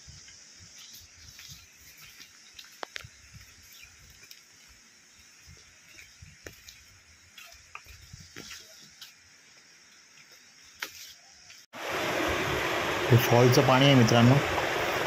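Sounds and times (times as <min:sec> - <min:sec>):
insects hissing: 0:00.0 - 0:15.0
footsteps on stony dirt trail: 0:00.3 - 0:04.8, 0:05.5 - 0:11.6.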